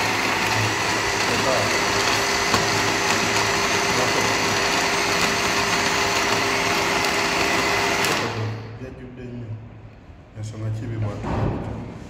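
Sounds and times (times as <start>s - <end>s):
electric blender running: 0.0s - 8.8s.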